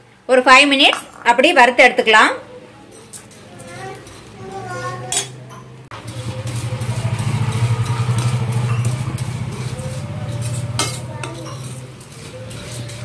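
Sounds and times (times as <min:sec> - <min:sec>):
spoon scraping steel pan: 0:02.9 - 0:05.4, 0:06.0 - 0:13.0.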